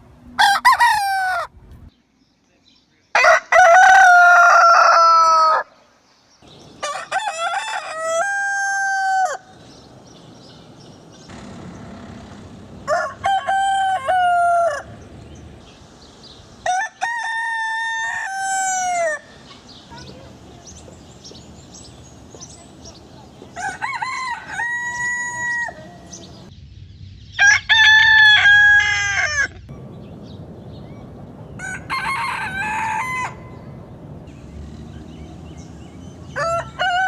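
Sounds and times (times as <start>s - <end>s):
roosters crowing: 0.4s - 1.6s, 3.1s - 5.8s, 6.4s - 26.5s, 27.4s - 37.0s.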